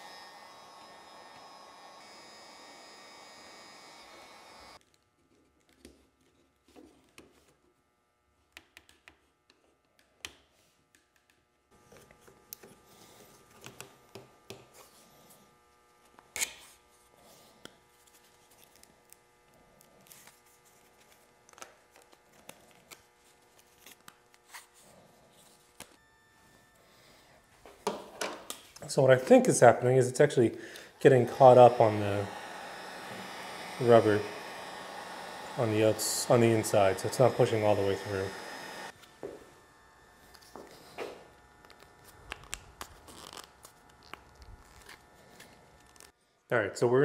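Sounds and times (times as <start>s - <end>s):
heat gun blowing: 0.0s - 4.8s, 29.4s - 44.2s.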